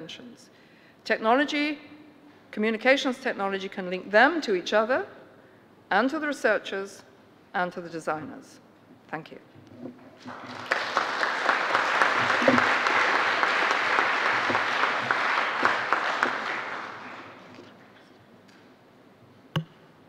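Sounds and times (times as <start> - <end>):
audience applauding: 10.2 - 17.7.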